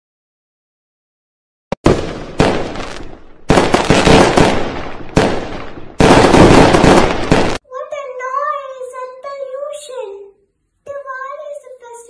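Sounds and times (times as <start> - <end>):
fireworks bangs: 1.7 - 7.6
fireworks crackling: 1.8 - 7.6.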